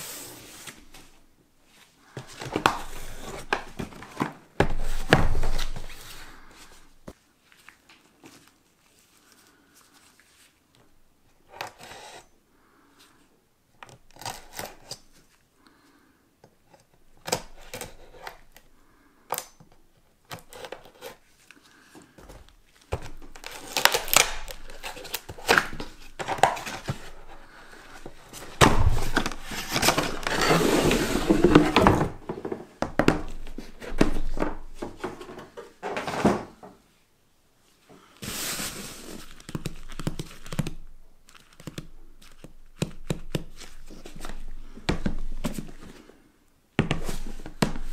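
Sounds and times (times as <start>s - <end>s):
cardboard scraping and rubbing: 24.6s - 32.6s.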